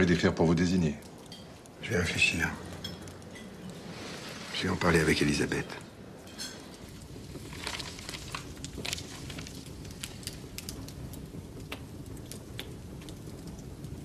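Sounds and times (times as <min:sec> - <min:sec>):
fire crackling and popping: 0:00.0 - 0:14.0
paper rustling: 0:07.4 - 0:10.3.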